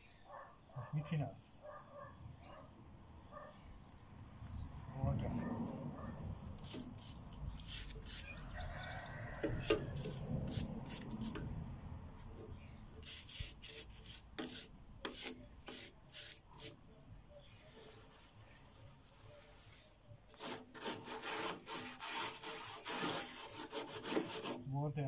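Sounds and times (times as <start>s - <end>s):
hand sanding metal: 6.6s - 8.3s, 9.5s - 11.5s, 13.0s - 16.8s, 19.4s - 24.7s.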